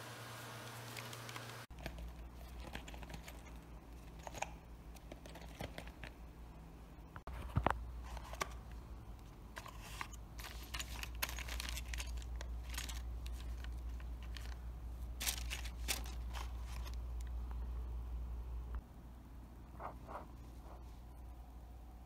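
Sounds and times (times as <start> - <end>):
steady low hum: 1.6 - 22.0
plastic bags crinkling: 9.7 - 17.3.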